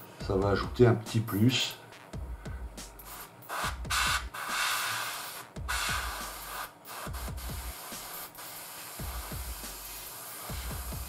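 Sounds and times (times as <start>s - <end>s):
airbrush spraying hiss: 2.8s - 11.0s.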